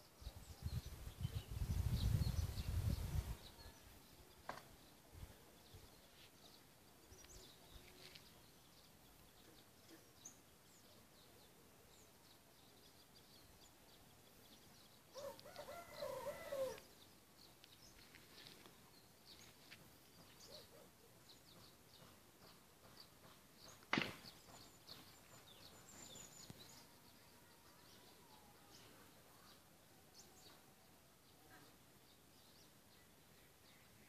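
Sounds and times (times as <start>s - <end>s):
rooster crowing: 15.2s - 16.8s.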